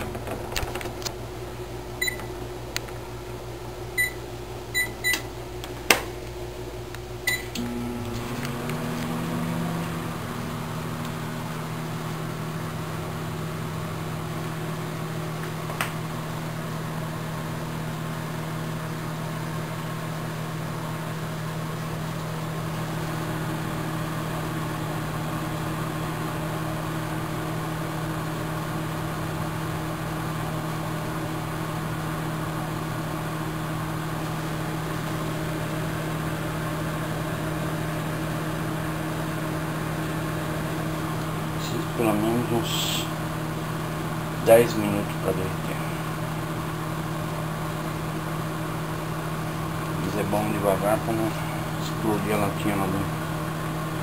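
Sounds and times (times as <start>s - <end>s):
microwave oven humming: 0.0s - 54.0s
microwave click: 4.8s - 6.1s, 6.9s - 11.6s.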